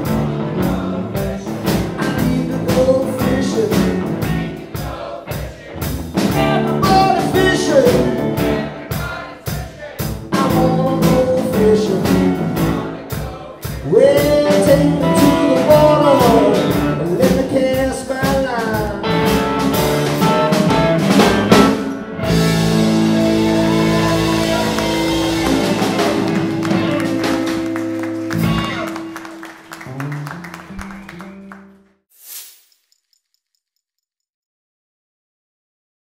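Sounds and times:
man singing: 0.0s - 4.6s, 6.3s - 19.5s, 23.1s - 26.3s
bass guitar: 0.0s - 4.8s, 5.8s - 9.2s, 10.0s - 31.9s
drum kit: 0.0s - 31.5s
electric guitars: 6.0s - 8.8s, 13.9s - 31.8s.

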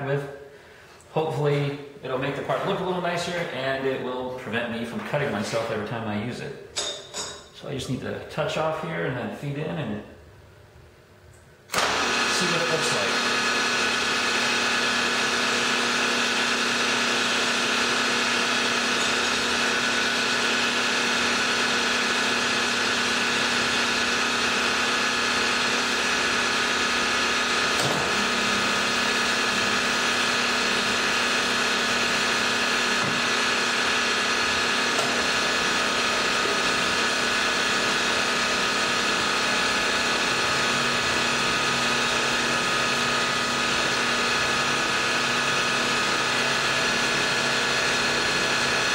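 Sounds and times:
milling machine cutting metal: 14.9s - 48.9s.

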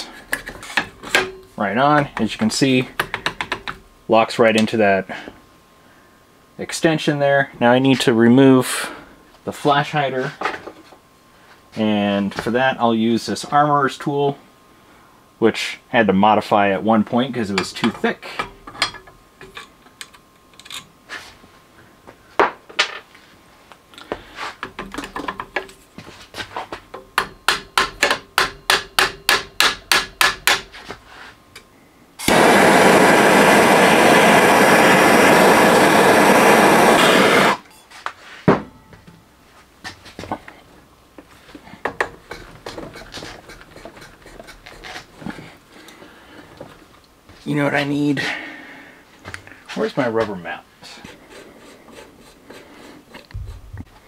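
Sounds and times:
gas torch hissing: 32.2s - 37.6s.

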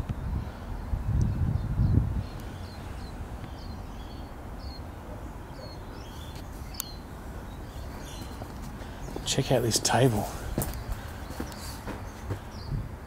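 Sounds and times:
small bird chirping: 5.5s - 9.3s.

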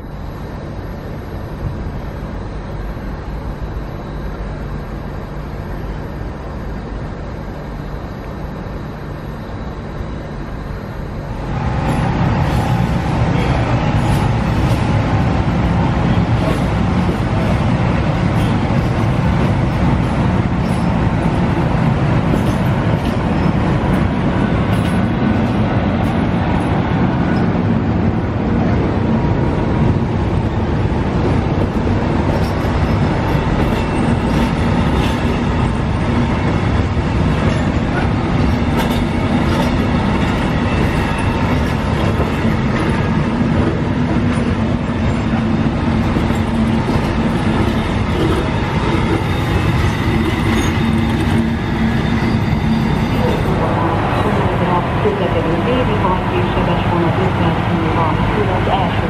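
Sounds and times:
passenger train rolling past: 0.0s - 59.0s
wheels clattering over rail joints: 37.3s - 44.6s.

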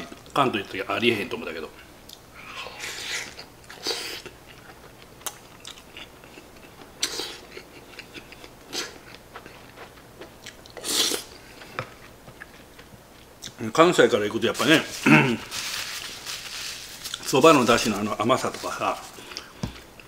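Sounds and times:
man slurping and chewing: 10.8s - 11.2s.

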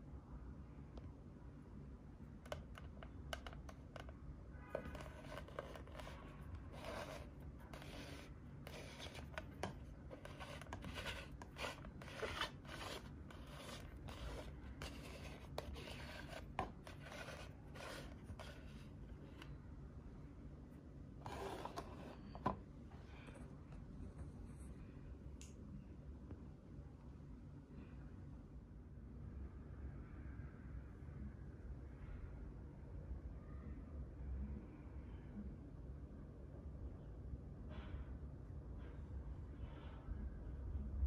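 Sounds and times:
plastic figure scraping on tabletop: 4.7s - 19.5s, 21.2s - 22.6s.

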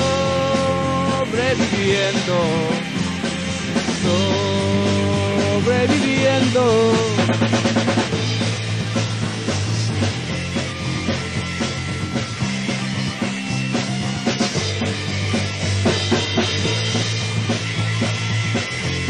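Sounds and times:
rock band instrumental: 0.0s - 19.0s.

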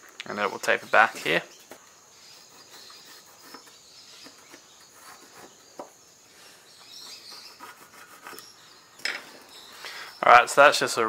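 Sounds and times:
insects chirping: 0.0s - 11.0s
pencil and ruler tapping and scratching: 2.6s - 6.0s.

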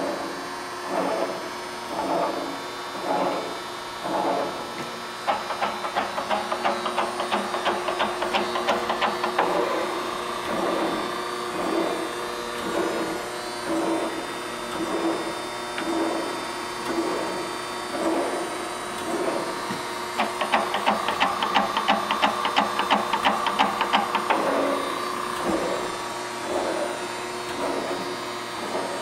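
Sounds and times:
steady machine hum: 0.0s - 29.0s
rapid machine clicks: 5.2s - 9.8s, 20.2s - 25.8s
whirring pulse: 24.3s - 29.0s.

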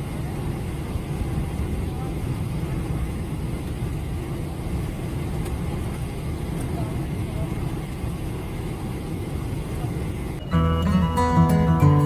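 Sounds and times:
vehicle cabin rumble: 0.0s - 12.0s
faint voices: 1.4s - 3.6s, 5.8s - 10.4s.

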